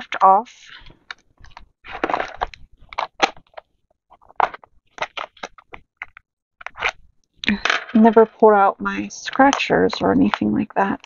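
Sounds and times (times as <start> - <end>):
paper crinkling and rustling: 0.8 - 7.0.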